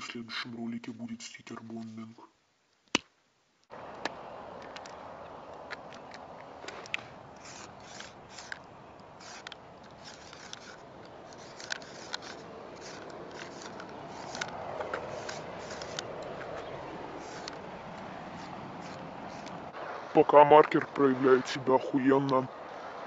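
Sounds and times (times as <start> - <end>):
background hiss: 0.0 - 23.0
marker scraping on concrete: 5.7 - 19.8.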